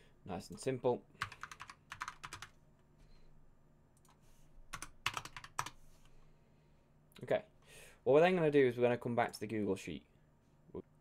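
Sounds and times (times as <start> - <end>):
typing on computer keyboard: 1.2 - 2.5, 4.7 - 5.8.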